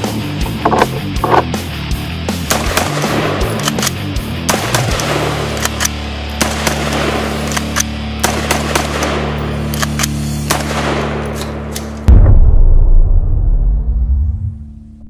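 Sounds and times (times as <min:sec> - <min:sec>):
background music with low drone: 0:00.0 - 0:15.0
rifle shots: 0:02.4 - 0:12.4.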